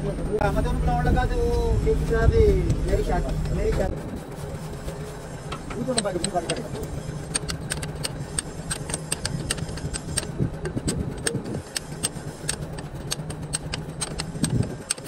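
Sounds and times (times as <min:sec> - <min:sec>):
low engine hum: 0:00.0 - 0:15.0
metal socket clicking: 0:07.2 - 0:15.0.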